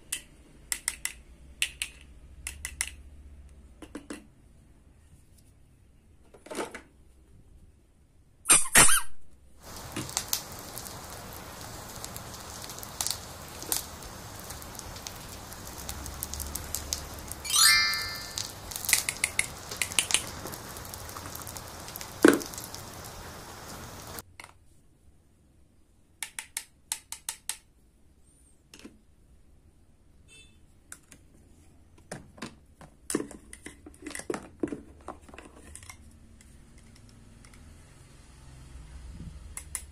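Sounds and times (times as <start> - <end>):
plastic toys clicking and knocking: 0.0 - 3.2, 3.8 - 4.4, 18.9 - 20.5, 26.2 - 27.7, 32.0 - 37.7
steady hiss: 9.6 - 24.2.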